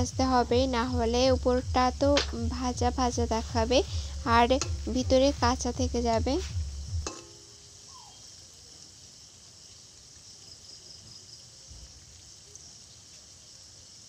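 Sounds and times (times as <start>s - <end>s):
food sizzling in hot oil: 7.0s - 10.7s.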